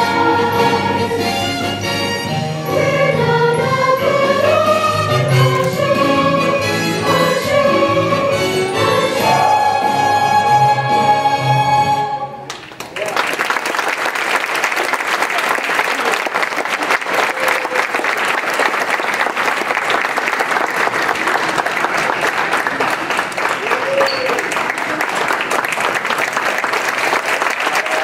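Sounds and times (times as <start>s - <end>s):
children's chorus singing: 0.0s - 12.3s
audience applauding: 12.5s - 28.0s.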